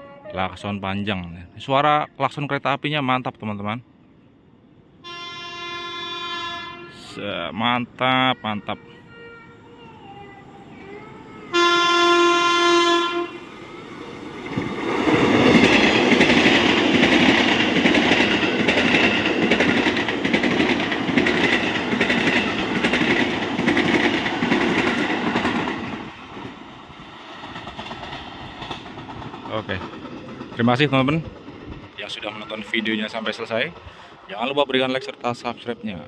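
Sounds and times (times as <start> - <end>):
train horn blast: 5.0 - 7.2, 11.5 - 13.9
train wheels rumbling on rails: 13.0 - 36.0
clickety-clack over rail joints: 14.4 - 35.7.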